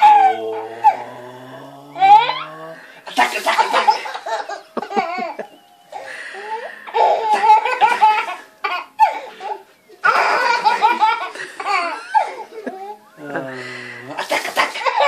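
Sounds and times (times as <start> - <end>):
baby laughing: 0.0 - 1.1, 3.1 - 13.1, 14.2 - 15.0.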